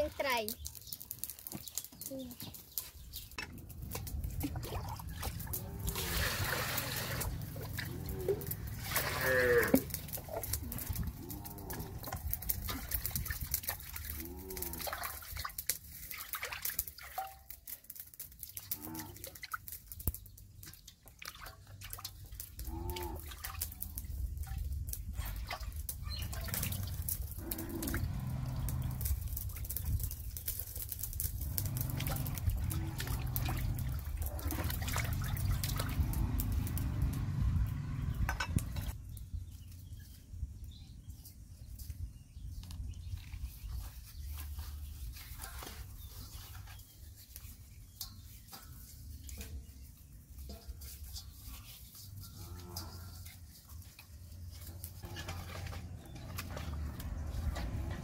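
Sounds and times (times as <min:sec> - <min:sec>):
water dripping and trickling: 0:00.0 - 0:39.8, 0:42.6 - 0:58.0
water splashing in a steel basin: 0:03.4 - 0:39.0, 0:46.4 - 0:58.0
hands scrubbing fish: 0:03.8 - 0:18.0.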